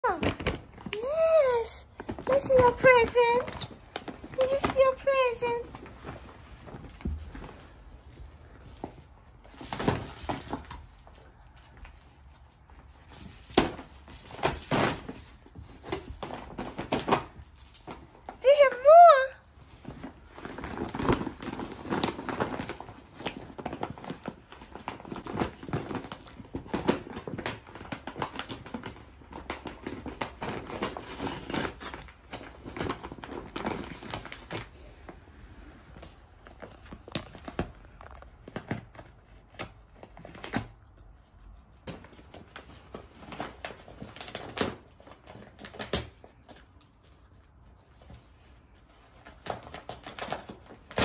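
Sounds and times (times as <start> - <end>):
paper bag and packaging crinkling: 0.0 - 51.0.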